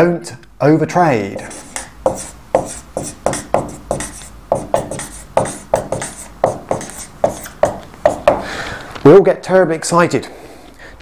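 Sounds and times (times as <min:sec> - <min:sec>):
marker writing on whiteboard: 0:01.4 - 0:08.5.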